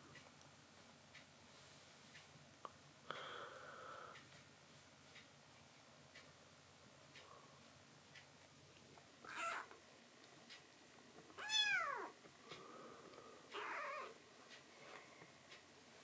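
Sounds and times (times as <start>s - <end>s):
kitten meowing: 9.3s - 9.7s, 11.4s - 12.1s, 13.6s - 14.2s.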